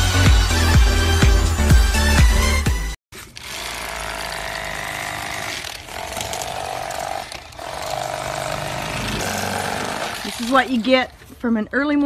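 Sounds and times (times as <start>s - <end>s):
electric knife buzzing: 3.2s - 11.0s.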